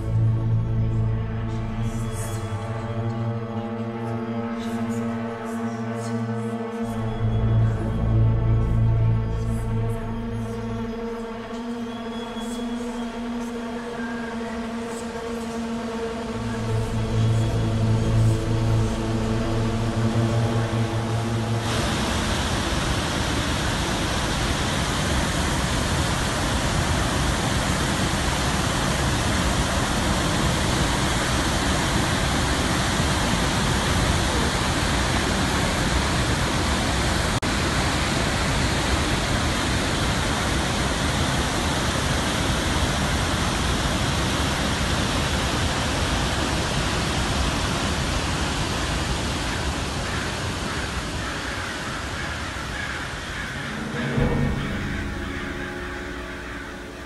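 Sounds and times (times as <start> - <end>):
held musical chord: 0.0 - 24.2, 53.3 - 57.0
waterfall roaring: 14.6 - 57.0.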